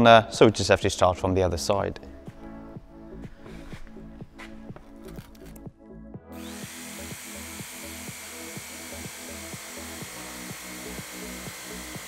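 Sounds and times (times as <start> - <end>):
background music with beat: 0.2 - 12.0
electric jigsaw cutting plastic: 6.4 - 12.0.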